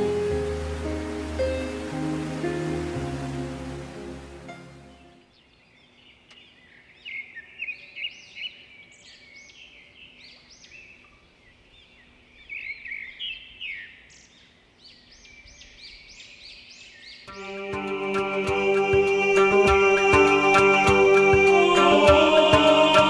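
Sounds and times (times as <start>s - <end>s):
small birds chirping: 4.8s - 23.0s.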